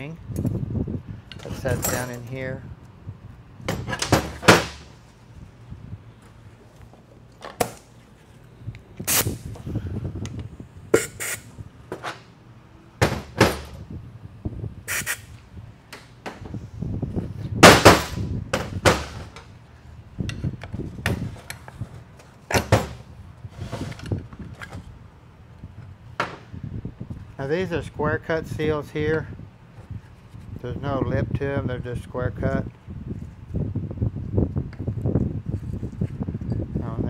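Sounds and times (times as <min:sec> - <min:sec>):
metal parts knocking and clanking: 0:01.3 - 0:02.4.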